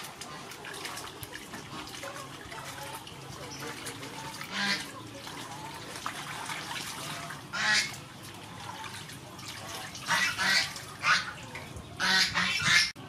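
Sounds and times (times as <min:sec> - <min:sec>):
water sloshing and dripping: 0:00.0 - 0:13.0
honking bird calls: 0:12.0 - 0:13.0.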